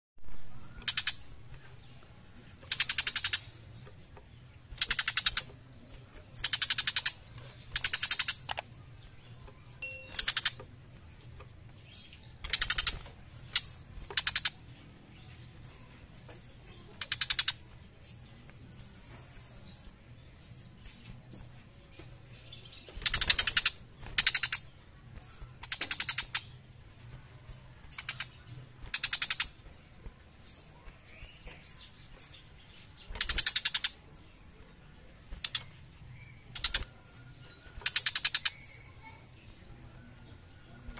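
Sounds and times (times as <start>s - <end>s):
bird harsh rasping chatters: 2.6s - 3.8s, 4.8s - 8.7s, 12.3s - 14.7s, 15.7s - 19.8s, 23.0s - 26.6s, 27.9s - 29.7s, 33.1s - 34.1s, 37.8s - 39.2s
bird high trill: 9.8s - 10.6s.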